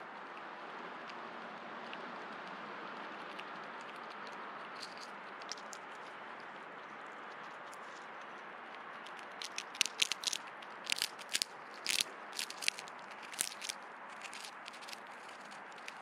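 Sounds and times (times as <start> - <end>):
animal cracking seeds: 3.2 - 6.6, 7.3 - 16.0.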